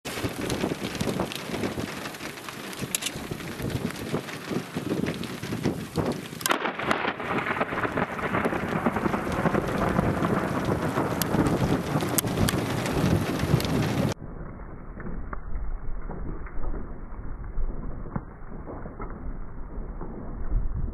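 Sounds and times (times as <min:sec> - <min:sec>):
rain falling: 0:00.1 - 0:14.2
rolling thunder: 0:00.1 - 0:20.9
sharp thunderclap: 0:03.5 - 0:14.4.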